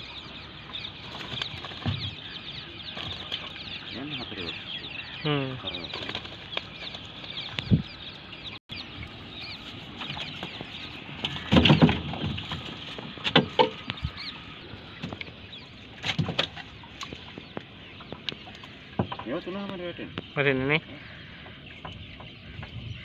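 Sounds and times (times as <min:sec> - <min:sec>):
small birds chirping: 0:00.0 - 0:23.0
fish flapping and thumping: 0:16.0 - 0:17.2.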